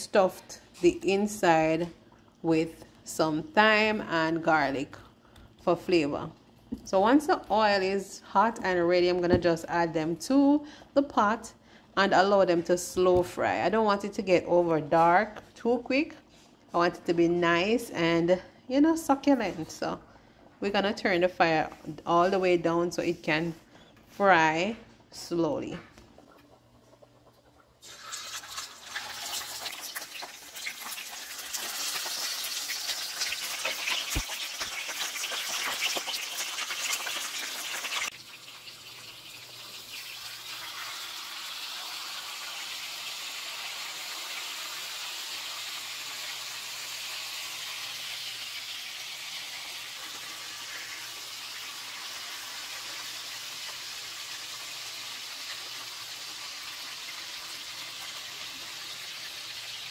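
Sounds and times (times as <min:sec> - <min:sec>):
fish sizzling in frying pan: 0:27.8 - 0:59.9.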